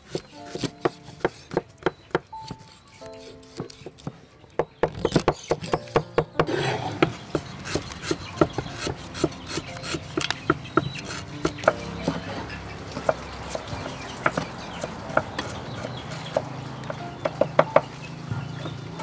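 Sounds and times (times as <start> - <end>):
knife scraping fish skin: 0.0 - 4.1, 6.5 - 12.2
cleaver knocking on wooden board: 3.5 - 12.2, 12.9 - 17.9.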